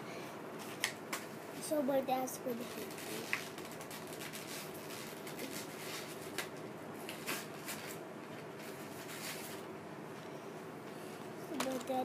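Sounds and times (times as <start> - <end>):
plastic package rustling: 2.6 - 8.0.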